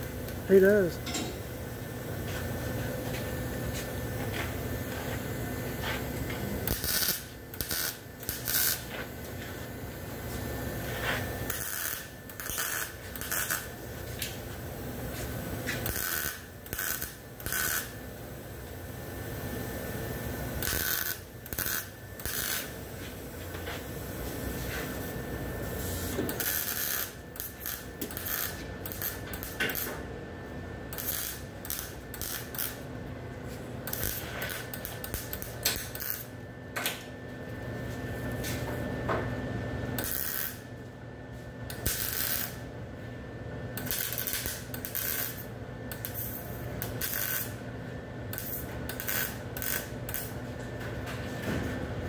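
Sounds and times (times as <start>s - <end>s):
welder crackling sizzle: 0.0s - 2.6s, 3.6s - 30.0s, 30.8s - 32.8s, 33.9s - 36.3s, 40.0s - 40.6s, 41.7s - 42.7s, 43.8s - 47.6s, 48.4s - 50.4s.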